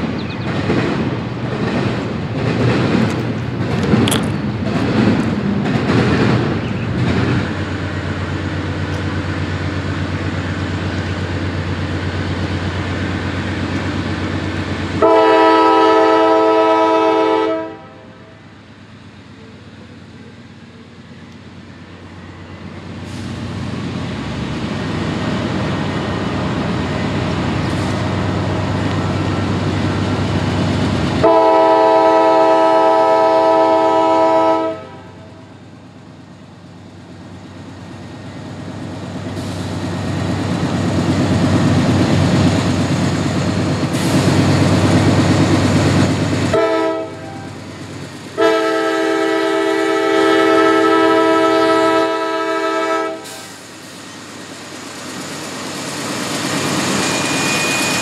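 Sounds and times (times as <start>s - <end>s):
diesel locomotive engine: 0.0s - 58.0s
train rail noise: 0.0s - 58.0s
train air horn blasts: 15.0s - 18.4s, 31.2s - 35.3s, 46.5s - 47.6s, 48.4s - 53.6s.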